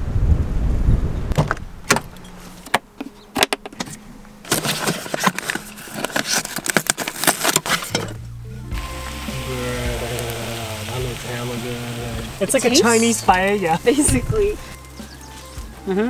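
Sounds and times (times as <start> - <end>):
wind rumble on microphone: 0.0 - 2.3, 14.0 - 14.8
plastic bags crinkling and rustling: 4.4 - 8.1.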